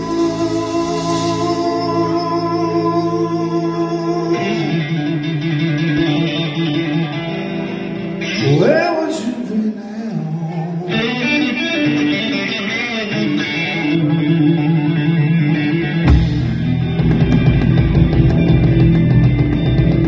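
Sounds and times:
live rock band playing: 0.0 - 9.5, 10.5 - 20.0
electric guitar: 0.0 - 20.0.

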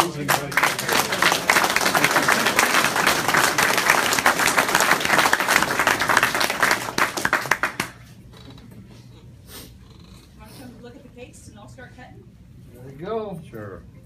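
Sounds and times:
small group applauding: 0.0 - 8.1.

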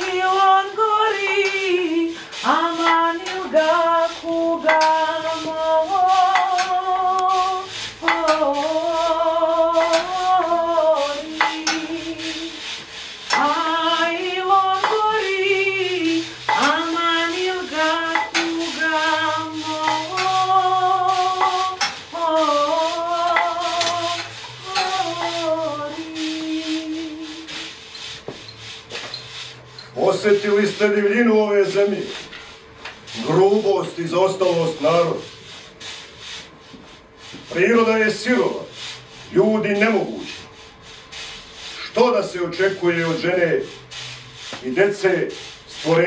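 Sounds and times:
woman singing wordless melody: 0.0 - 12.6, 13.4 - 27.6.

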